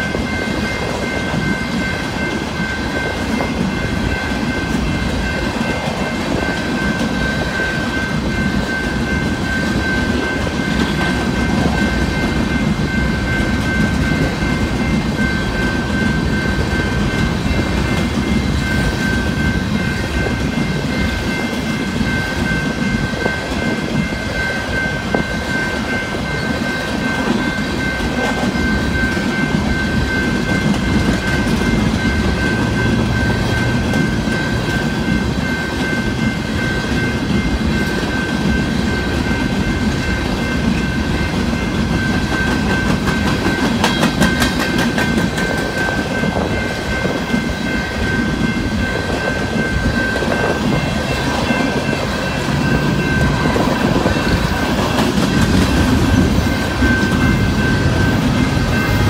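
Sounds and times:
steady high tone: 0:00.0 - 0:59.0
train wheels rumbling on rail: 0:00.0 - 0:59.0
wheels clicking over rail joints: 0:40.7 - 0:46.5.

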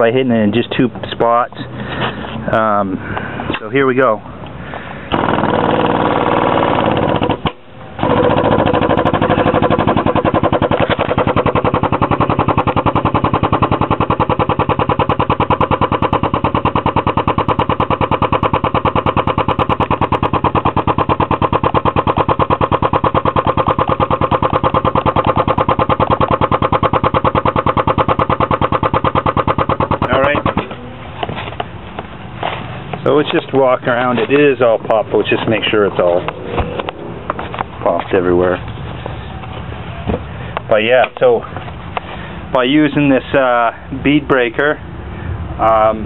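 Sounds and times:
hydraulic pump pulsing: 0:05.0 - 0:40.7.

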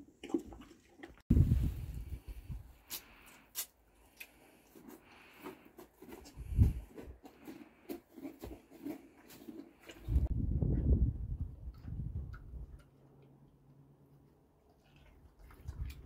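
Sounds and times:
pony crunching feed: 0:04.1 - 0:10.3.

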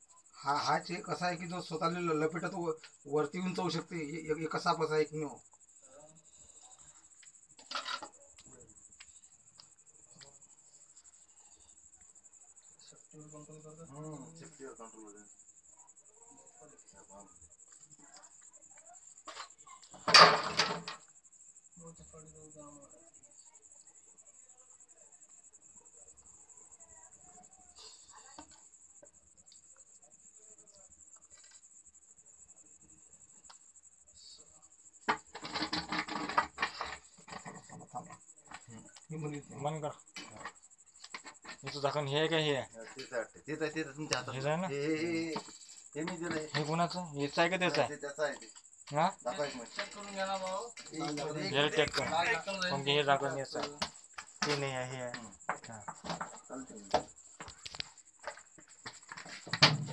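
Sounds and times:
crickets chirping: 0:00.0 - 0:59.9
plastic pipe rustling and scraping: 0:35.1 - 0:38.2, 0:57.5 - 0:59.9.

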